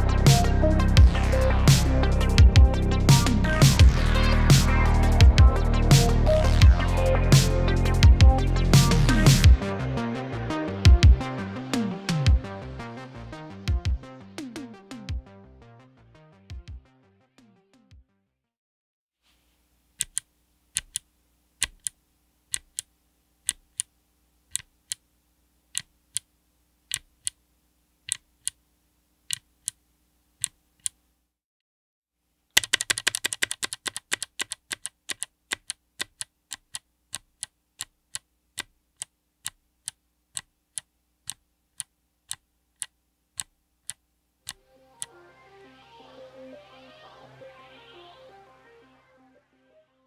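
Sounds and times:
keyboard switch clicking: 21.6s - 21.9s.

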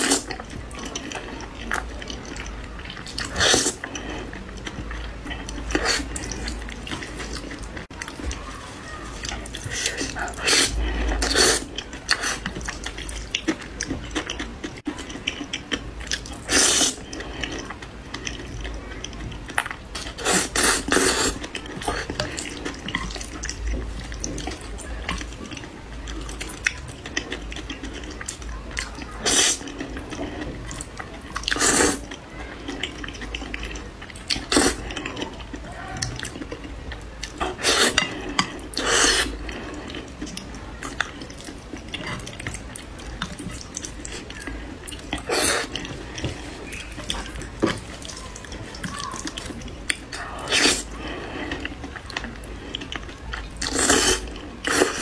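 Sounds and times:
wet chewing: 0.0s - 55.0s
noodle slurping: 2.1s - 4.4s, 9.2s - 13.4s, 16.3s - 17.7s, 20.0s - 23.4s, 29.2s - 30.8s, 31.4s - 32.0s, 37.4s - 40.1s, 43.2s - 52.9s, 53.6s - 55.0s.

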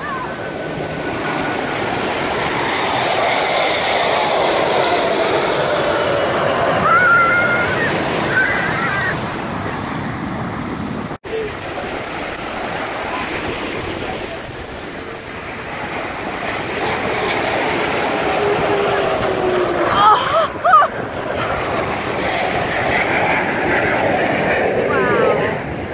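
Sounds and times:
surf breaking on beach: 0.0s - 25.9s
faint voices: 11.2s - 25.9s.

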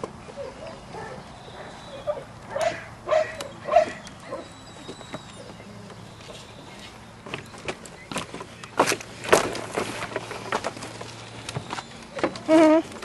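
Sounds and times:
puppy barking: 0.4s - 4.6s.

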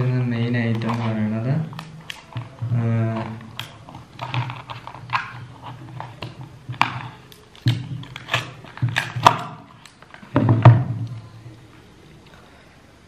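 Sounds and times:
cardboard box and packaging handled: 1.8s - 10.8s.

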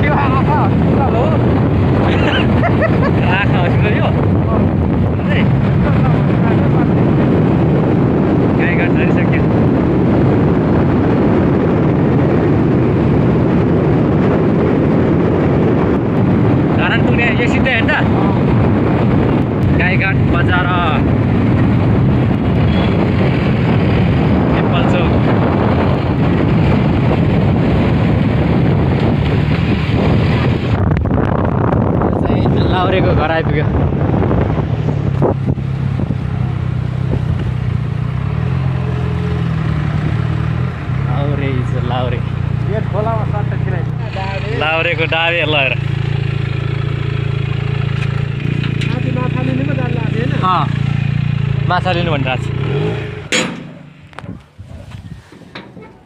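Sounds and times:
motorcycle riding: 0.0s - 56.0s
wind rumble on microphone: 0.0s - 56.0s.

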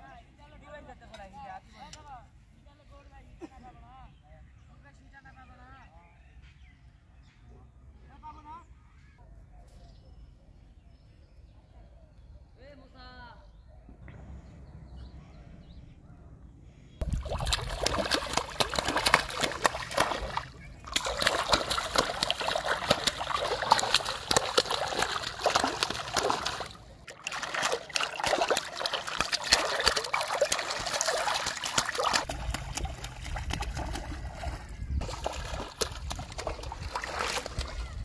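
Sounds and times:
fish splashing in water: 17.0s - 38.0s.

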